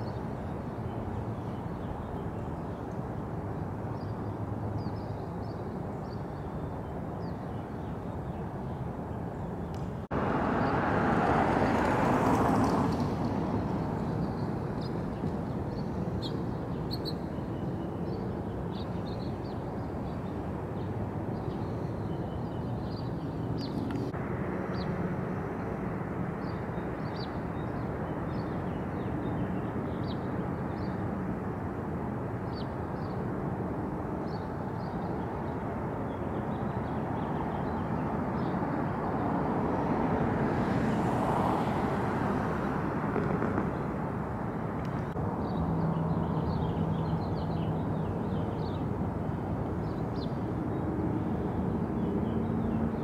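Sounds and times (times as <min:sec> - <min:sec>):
small birds chirping: 0:14.0 - 0:24.9.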